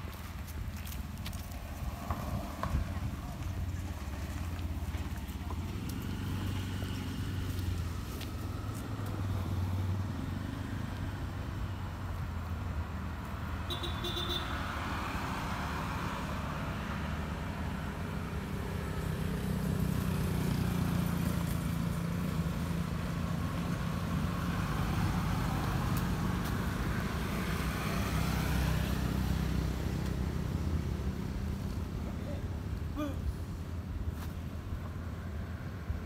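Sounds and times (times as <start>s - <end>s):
vehicle engine rumbling: 0.0s - 14.3s.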